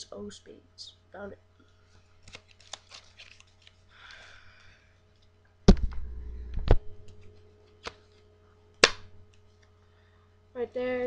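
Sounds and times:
playing cards clicking: 0:07.8 - 0:08.2.

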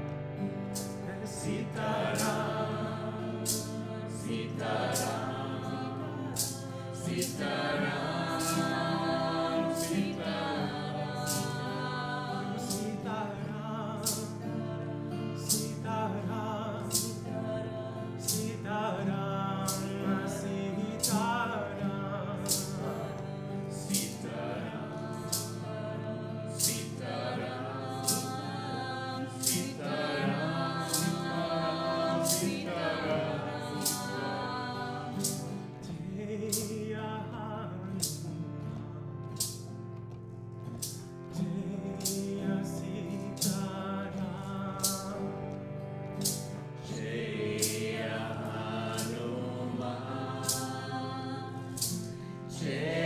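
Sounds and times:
steady drone: 0:00.0 - 0:19.1, 0:19.7 - 0:36.4, 0:40.6 - 0:53.0
voices chanting call and response: 0:00.8 - 0:21.6, 0:22.5 - 0:35.8, 0:46.3 - 0:53.0
hand cymbals striking: 0:29.2 - 0:35.6.

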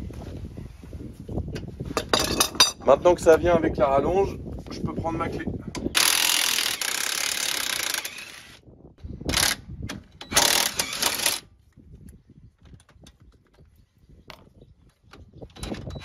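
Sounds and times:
impact wrench running: 0:06.0 - 0:08.6.

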